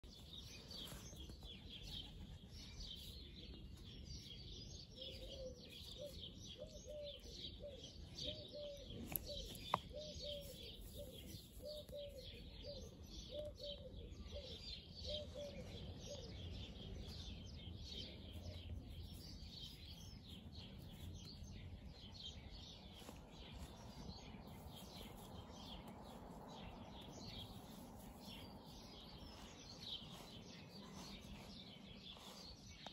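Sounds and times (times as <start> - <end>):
birds chirping and singing: 0.0 - 32.9
pigeon cooing: 5.1 - 16.4.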